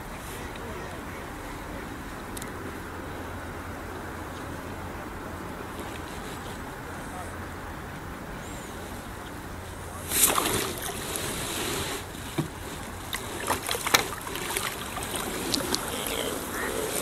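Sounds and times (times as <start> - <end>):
wind hiss: 0.0 - 17.0
fish splashing at surface: 10.1 - 11.4, 13.0 - 17.0.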